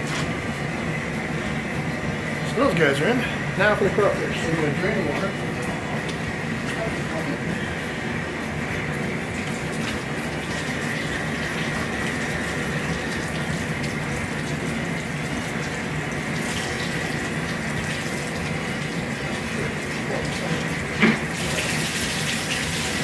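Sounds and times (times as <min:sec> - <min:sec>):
water pouring from drain plugs: 0:09.3 - 0:23.0.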